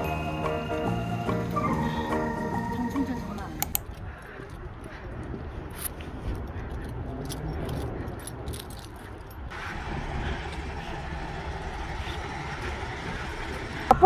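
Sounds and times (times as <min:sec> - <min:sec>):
street hum: 0:00.0 - 0:14.0
traffic rumble: 0:00.0 - 0:14.0
keys jingling: 0:03.7 - 0:09.5.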